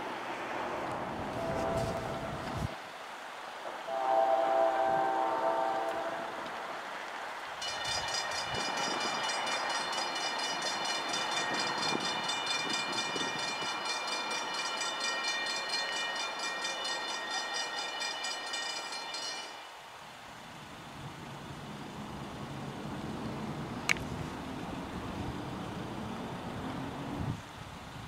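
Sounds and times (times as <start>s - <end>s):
approaching train: 0.0s - 27.7s
railroad crossing bell ringing: 7.6s - 20.0s.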